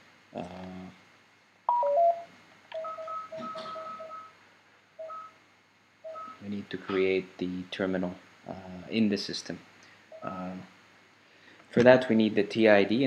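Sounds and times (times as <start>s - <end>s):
falling electronic chime: 1.7s - 4.3s
electronic beeps: 1.7s - 4.4s, 5.0s - 5.4s, 6.1s - 6.4s, 10.1s - 10.4s.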